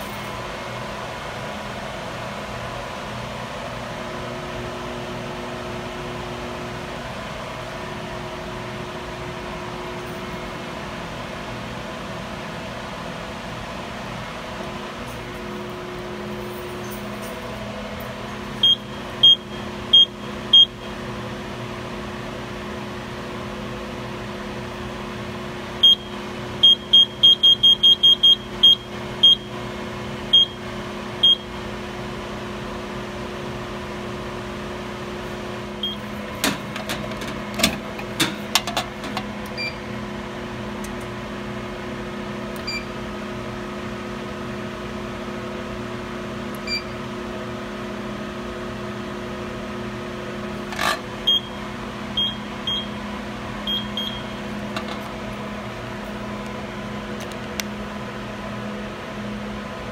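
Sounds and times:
steady hum: 0.0s - 59.9s
keypad beeps: 35.8s - 36.0s, 42.6s - 42.9s, 51.3s - 51.5s, 52.2s - 53.0s, 53.7s - 54.4s.

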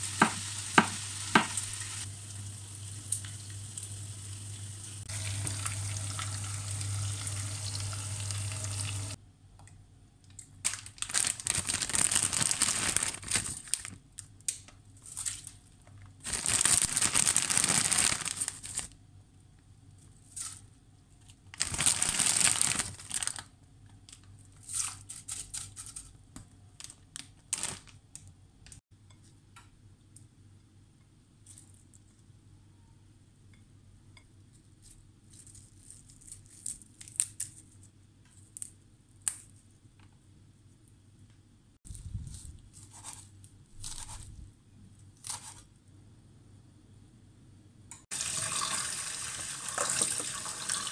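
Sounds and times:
chicken sizzling in oil: 0.0s - 9.2s, 48.1s - 50.9s
small crackles: 10.3s - 19.0s, 19.9s - 28.8s, 34.6s - 44.4s
loud crinkling rustling: 10.6s - 14.0s, 16.2s - 18.9s, 21.5s - 23.5s, 26.8s - 28.0s.

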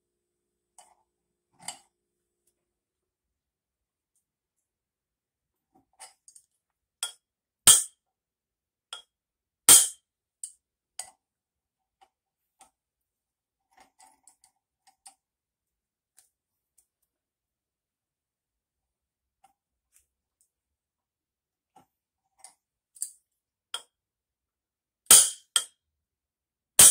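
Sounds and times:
metal tool tapping on metal: 7.0s - 7.9s, 25.1s - 25.7s.

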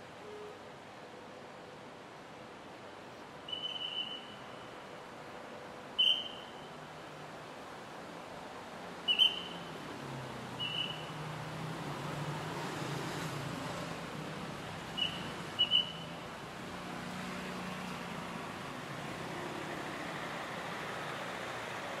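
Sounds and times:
street traffic engines: 0.0s - 22.0s.

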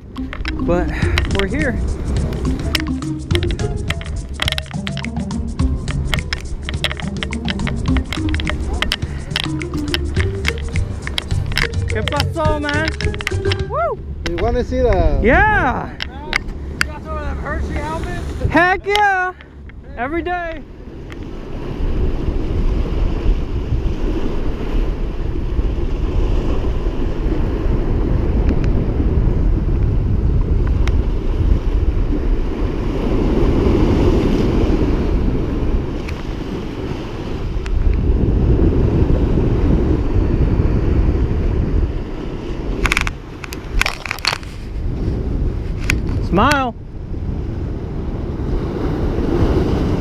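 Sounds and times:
waves breaking on rocks: 0.0s - 5.2s, 6.0s - 29.8s, 30.5s - 50.0s
wind buffeting microphone: 0.0s - 50.0s
sharp clicks: 0.1s - 15.1s.

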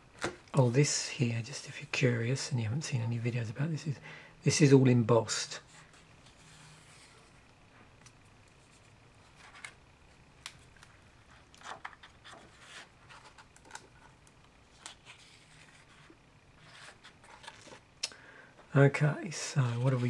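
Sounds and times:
paper pages rustling: 8.6s - 17.9s, 19.5s - 20.0s.

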